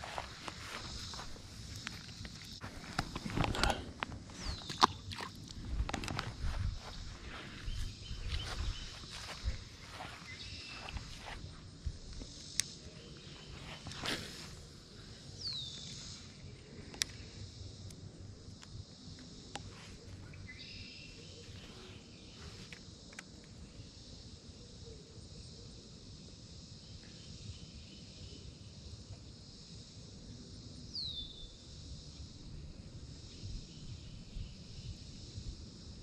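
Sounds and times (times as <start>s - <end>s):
high-pitched insect buzz: 0.0s - 3.8s, 6.1s - 36.0s
wind rumble on microphone: 5.5s - 12.3s.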